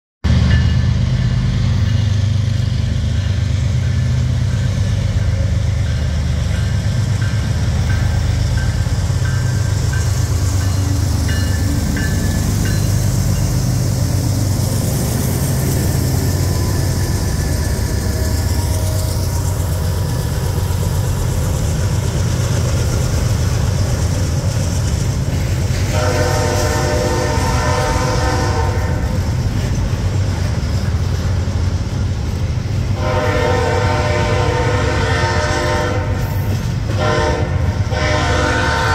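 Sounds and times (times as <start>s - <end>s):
freight train rumbling past: 0.2s - 38.9s
locomotive air horn chord: 25.9s - 29.2s, 33.0s - 38.9s.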